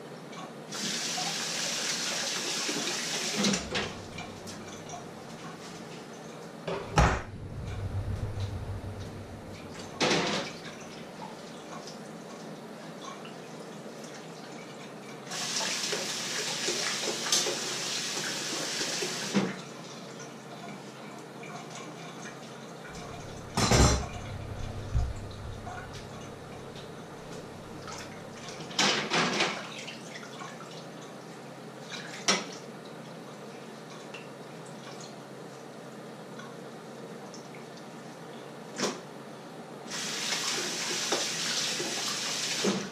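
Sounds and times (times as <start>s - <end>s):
tap running: 23.0s - 28.5s
dishes and pans clattering: 23.2s - 24.4s.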